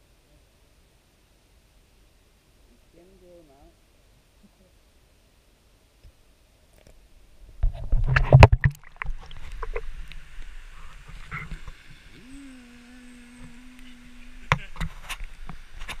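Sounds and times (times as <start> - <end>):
rushing stream and waterfall: 0.0 - 12.2
person holding a sung note: 12.1 - 14.8.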